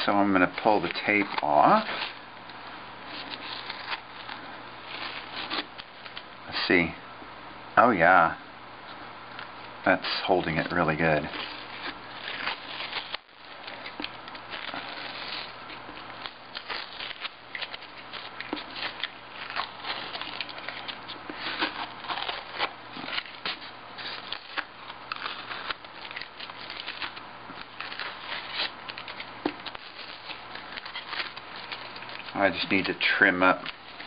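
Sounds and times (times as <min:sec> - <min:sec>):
masking tape peeling off glass: 0:03.1 - 0:06.3, 0:10.0 - 0:33.0.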